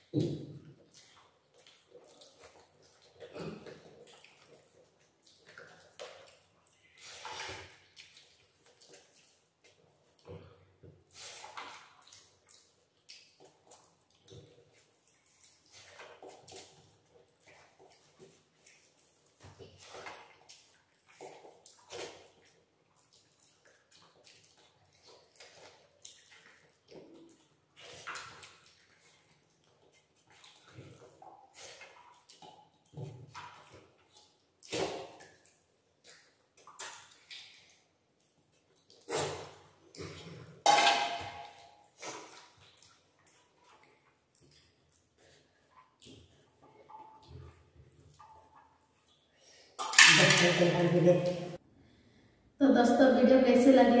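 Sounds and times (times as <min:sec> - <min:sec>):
chewing: 0:00.0 - 0:40.6, 0:41.4 - 0:49.8
fingers mixing rice and curry: 0:00.7 - 0:40.6.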